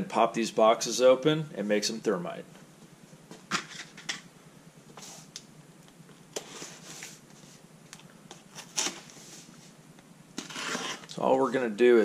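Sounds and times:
knife slitting packing tape: 0:08.6 - 0:09.2, 0:10.4 - 0:11.1.

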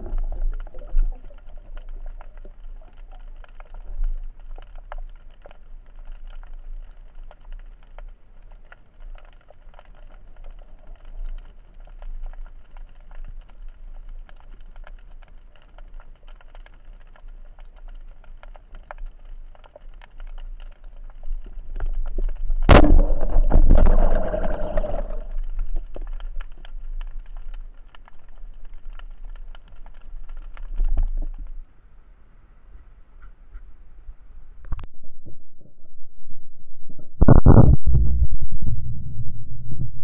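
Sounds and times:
underwater crackle of clicks: 0:00.0 - 0:31.7, 0:34.6 - 0:35.9
loud underwater rushing: 0:22.7 - 0:25.4.

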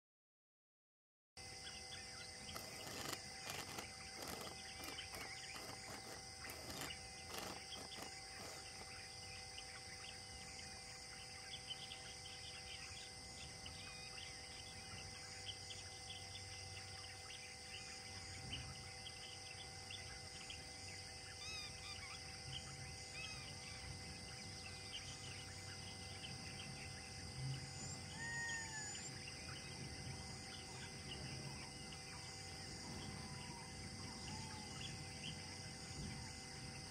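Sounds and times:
insect chorus droning: 0:01.4 - 0:36.9
bird calls: 0:01.6 - 0:20.7, 0:21.3 - 0:36.2
faint clicks: 0:02.5 - 0:08.9.

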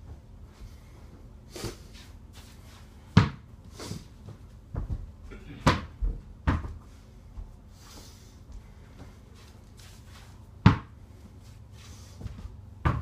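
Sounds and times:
ball hitting hoop and door: 0:03.1 - 0:03.5, 0:04.7 - 0:06.8, 0:10.6 - 0:11.0, 0:12.7 - 0:13.0
ball bouncing on floor: 0:03.2 - 0:03.5, 0:04.3 - 0:06.8, 0:10.6 - 0:11.0, 0:12.8 - 0:13.0.

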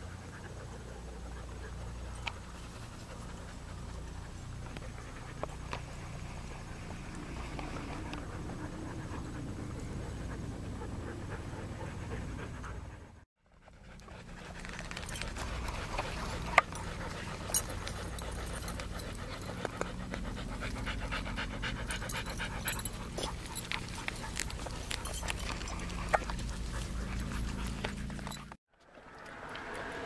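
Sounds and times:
dog panting: 0:00.0 - 0:28.6.

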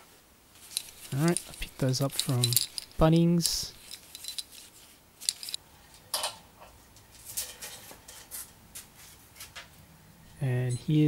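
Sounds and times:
metal shackles clinking: 0:00.6 - 0:05.6.

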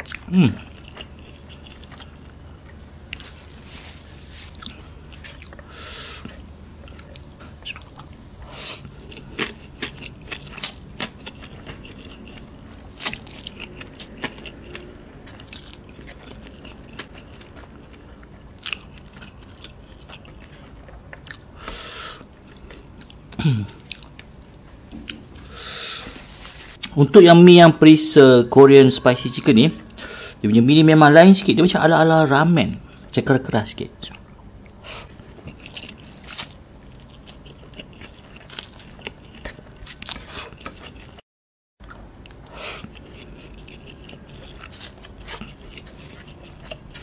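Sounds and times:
chewing and slurping noodles: 0:41.8 - 0:47.0.

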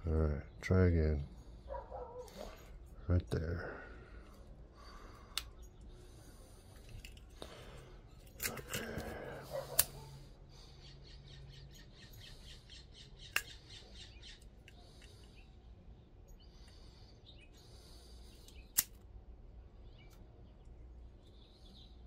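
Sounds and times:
lighter scraping and clicking: 0:09.7 - 0:10.0, 0:18.3 - 0:19.0.

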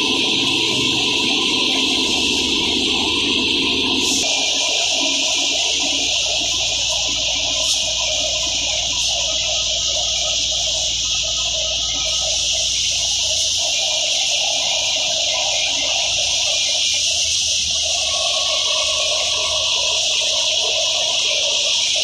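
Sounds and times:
low hum: 0:00.0 - 0:04.3.

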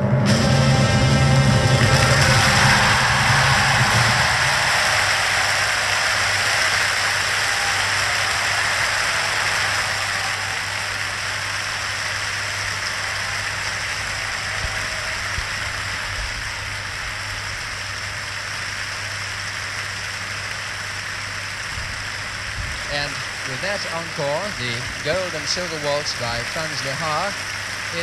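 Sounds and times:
audience applauding: 0:00.0 - 0:28.0.

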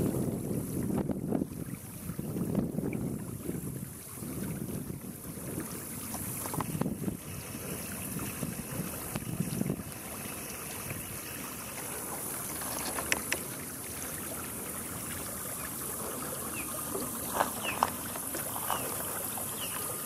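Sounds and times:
wind gusting on microphone: 0:00.0 - 0:13.8
steady high hiss: 0:07.2 - 0:20.0
faint clicks: 0:12.5 - 0:13.5.

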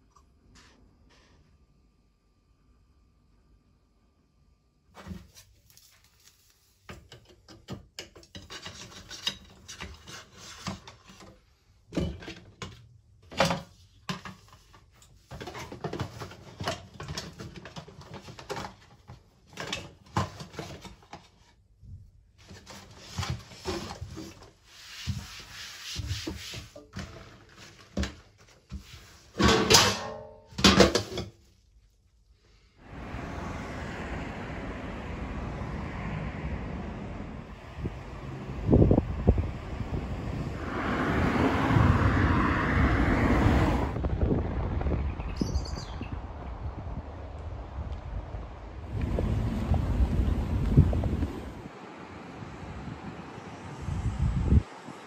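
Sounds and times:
rustling: 0:05.0 - 0:06.9
kitchenware knocking and clattering: 0:29.4 - 0:31.3
wind buffeting microphone: 0:32.8 - 0:55.0.

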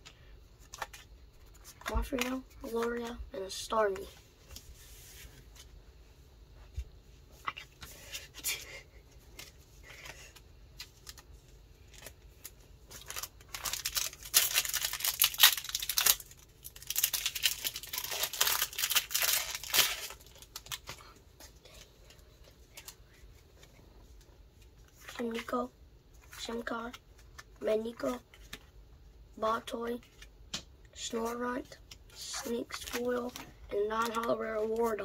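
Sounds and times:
foil wrapper tearing and crinkling: 0:11.9 - 0:20.9.

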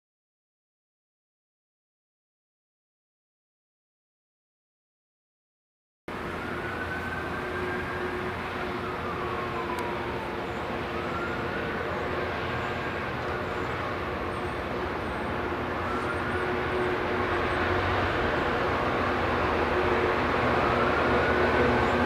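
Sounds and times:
diesel locomotive engine under load: 0:06.1 - 0:22.0.

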